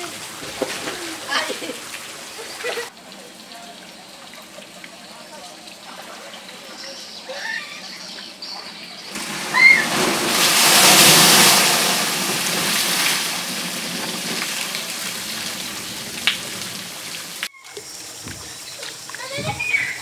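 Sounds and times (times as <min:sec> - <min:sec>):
water crashing and splashing: 0:00.0 - 0:02.9, 0:09.1 - 0:17.5.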